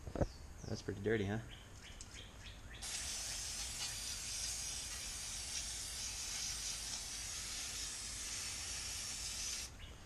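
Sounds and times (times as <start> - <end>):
aerosol can spraying: 2.8 - 9.7.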